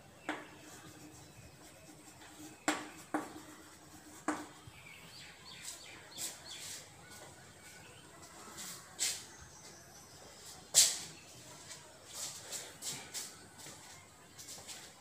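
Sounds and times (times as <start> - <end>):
chalk scratching on chalkboard: 0.1 - 7.4.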